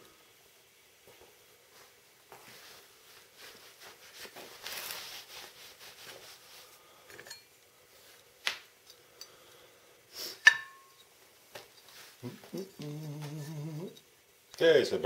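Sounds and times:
rustling: 1.8 - 8.8, 10.2 - 14.2.

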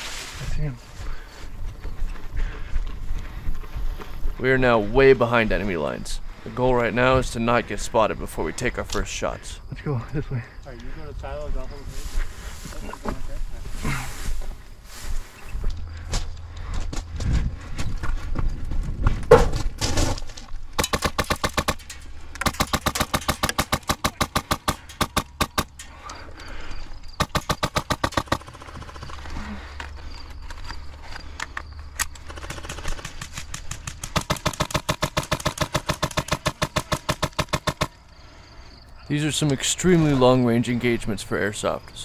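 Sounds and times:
airsoft guns firing full-auto: 20.8 - 25.8, 27.2 - 29.5, 32.0 - 38.0.

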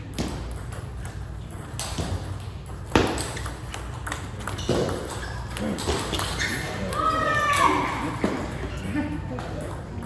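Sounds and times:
hard table tennis hit: 0.0 - 8.6.

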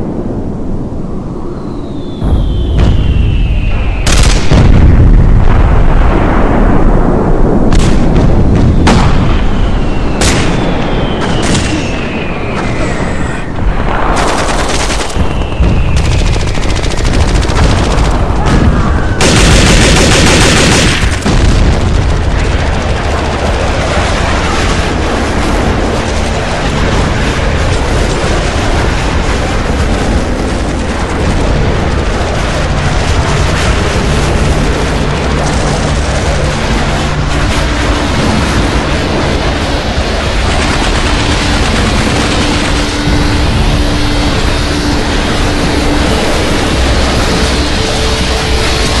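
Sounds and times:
jet engine whine falling in pitch: 0.0 - 4.3, 8.7 - 14.1, 31.9 - 49.0
fighter jet roar: 0.0 - 49.0.

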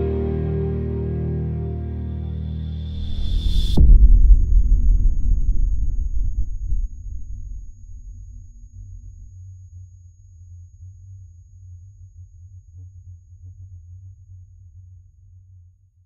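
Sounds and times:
low rumbling hum: 0.0 - 10.1.

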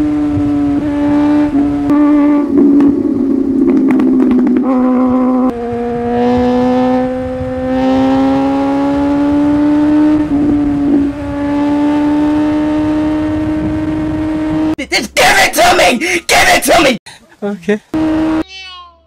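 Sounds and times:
motorcycle engine accelerating: 0.0 - 14.8, 17.9 - 18.4.

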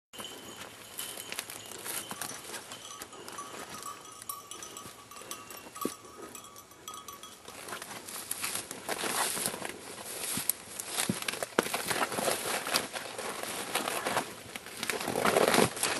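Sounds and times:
dog collar bell ringing: 0.2 - 8.2
footsteps through brush: 0.2 - 15.9.

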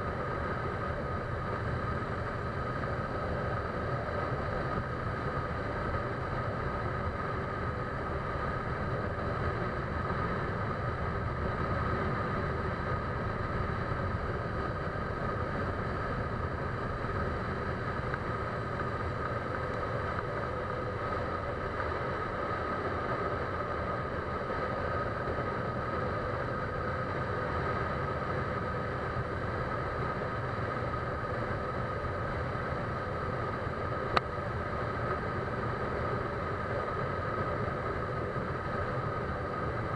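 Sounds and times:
engine-like drone: 0.0 - 39.9.

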